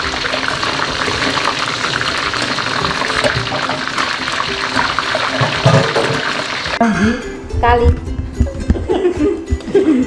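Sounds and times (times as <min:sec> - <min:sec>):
broth bubbling in a pot: 0:00.0 - 0:06.8.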